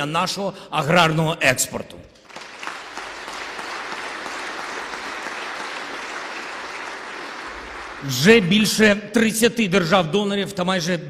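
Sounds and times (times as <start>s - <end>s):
audience applauding: 2.2s - 8.8s.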